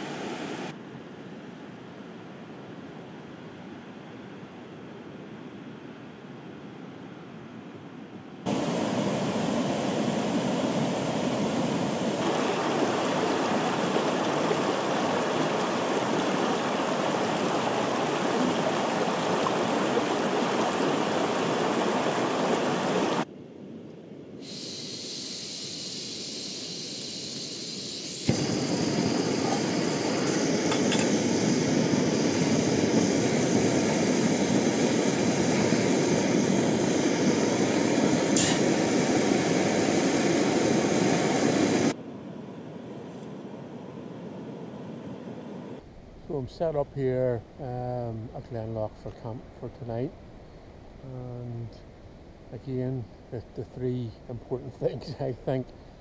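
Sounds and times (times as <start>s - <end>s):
river running over rocks: 8.5s - 23.2s
gas stove burner running: 24.6s - 42.0s.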